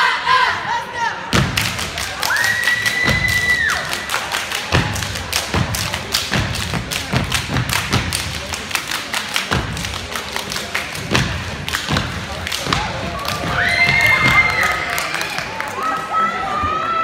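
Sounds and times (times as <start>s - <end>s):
hand claps: 1.5s - 13.5s.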